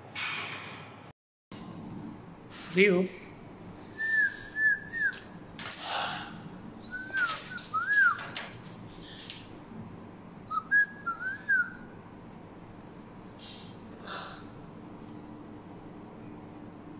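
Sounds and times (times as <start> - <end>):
cockatoo whistling: 3.9 - 5.4, 6.8 - 8.2, 10.5 - 11.9.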